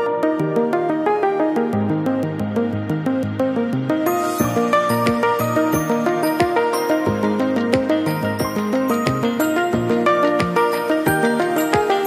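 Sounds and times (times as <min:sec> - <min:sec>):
stepping synth melody: 0:00.0 - 0:12.0
deep kick beat: 0:04.4 - 0:06.7.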